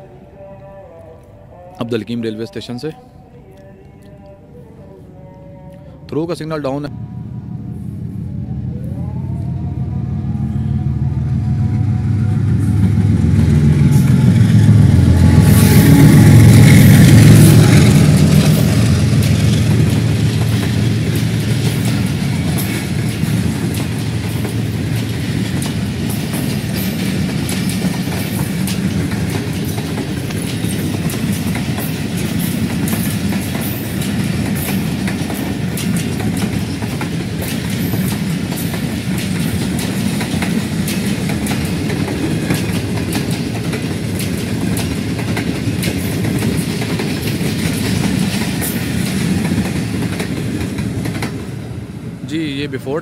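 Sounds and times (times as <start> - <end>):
train wheels rumbling on rails: 6.1 - 53.0
wheels clicking over rail joints: 16.8 - 51.5.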